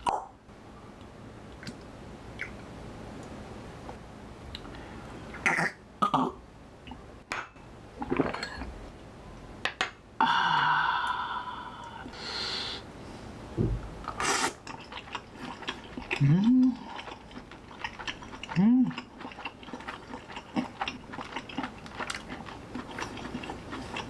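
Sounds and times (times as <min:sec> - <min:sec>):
person exhaling ahh: 0:10.2 - 0:12.9
person breathing: 0:10.2 - 0:13.4.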